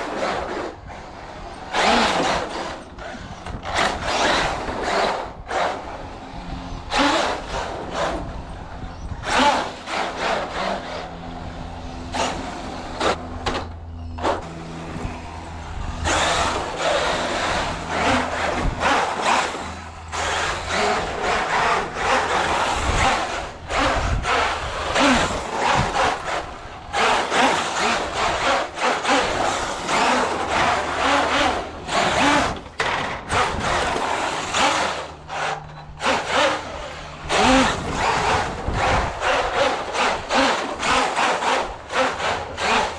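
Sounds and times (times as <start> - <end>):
toy truck tyres rumbling on boards: 0.0 - 42.9.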